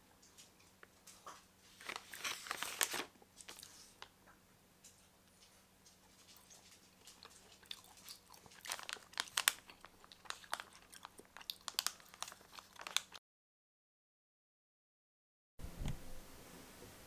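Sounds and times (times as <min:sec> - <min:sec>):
plastic snack pouch crinkling: 0:01.7 - 0:04.1, 0:06.2 - 0:13.2.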